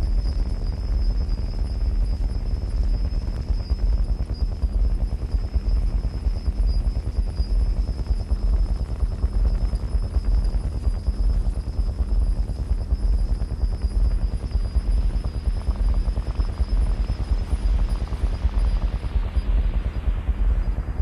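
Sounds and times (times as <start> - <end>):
low rumbling drone with flutter: 0.0 - 21.0.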